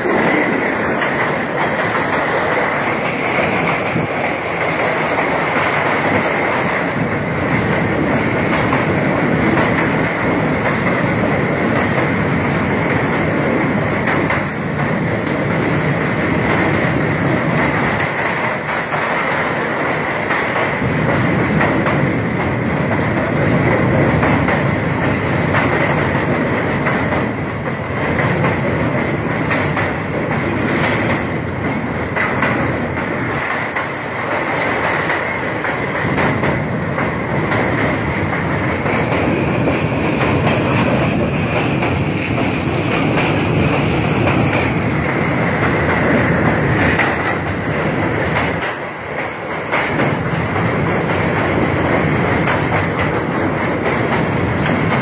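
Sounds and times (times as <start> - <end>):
train wheels rumbling and clattering: 0.0 - 55.0.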